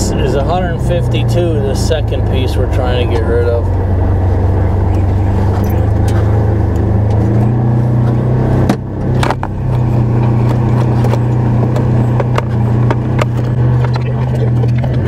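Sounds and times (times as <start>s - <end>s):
engine running inside cab: 0.0s - 15.0s
cab knocks and rattles: 8.6s - 15.0s.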